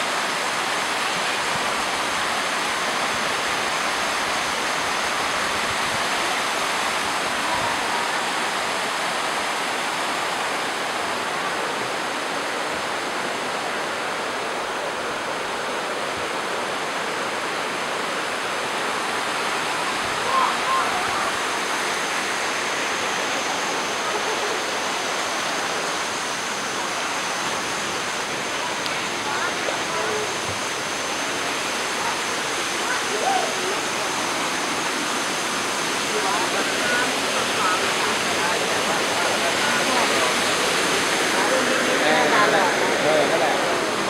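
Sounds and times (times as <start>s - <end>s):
waterfall cascading over rocks: 0.0s - 44.0s.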